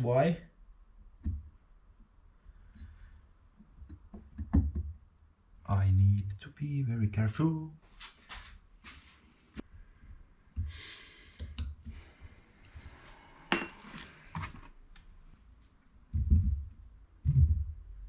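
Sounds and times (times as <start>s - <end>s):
low thuds: 16.1s - 18.0s.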